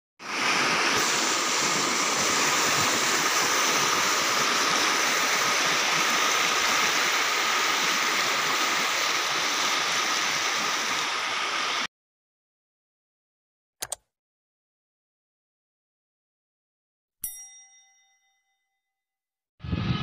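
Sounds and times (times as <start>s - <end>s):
flood water rushing: 0.2s - 11.9s.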